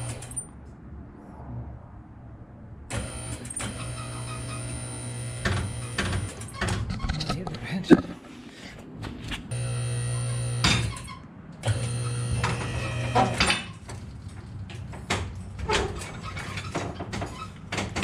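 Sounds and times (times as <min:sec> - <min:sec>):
electric hydraulic pump running: 0:02.9 - 0:06.4, 0:09.5 - 0:11.0, 0:11.6 - 0:13.4.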